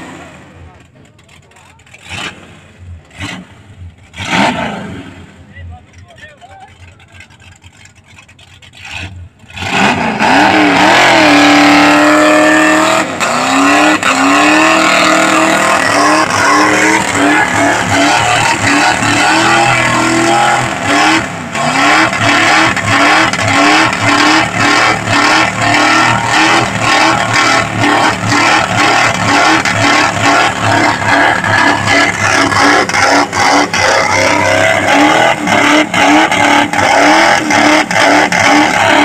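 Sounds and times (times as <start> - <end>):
car engine revving hard: 0.0 - 0.8, 1.6 - 5.5, 8.7 - 39.0
tyre squealing: 8.8 - 39.0.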